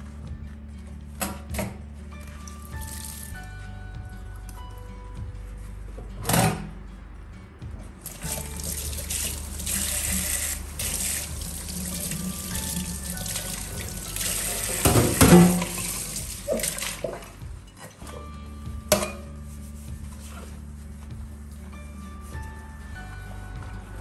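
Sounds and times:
tap running into a sink: 0:08.1 - 0:17.3.

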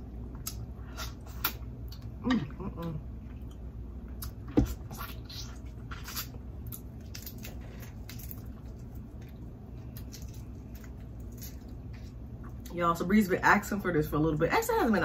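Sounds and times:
wet chewing sounds: 0:03.2 - 0:12.7.

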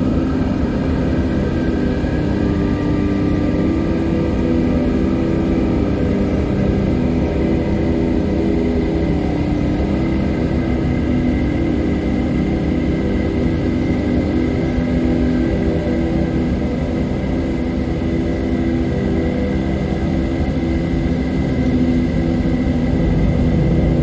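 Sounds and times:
ambient drone music: 0:00.0 - 0:24.0
dense noise bed: 0:00.0 - 0:24.0.

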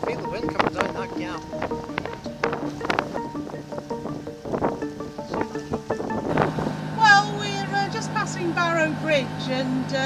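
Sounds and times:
sharp percussive strikes: 0:00.0 - 0:06.8
instrumental tune: 0:00.0 - 0:07.7.

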